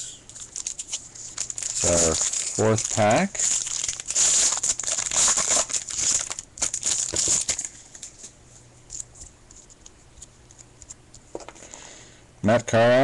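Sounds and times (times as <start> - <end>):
wrapper tearing and crinkling: 0.3 - 8.3
cards rustling and clicking: 0.3 - 11.6.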